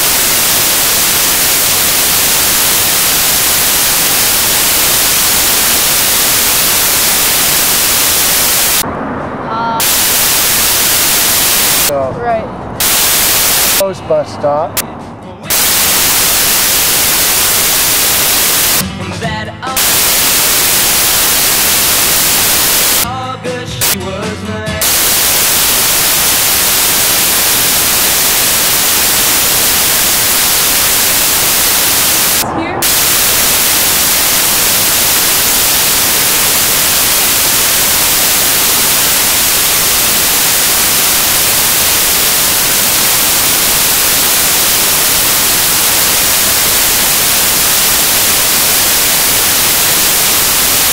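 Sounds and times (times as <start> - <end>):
static hiss: 0.0 - 8.8, 9.8 - 11.9, 12.8 - 13.8, 15.5 - 18.8, 19.7 - 23.1, 23.8 - 24.0, 24.8 - 50.9.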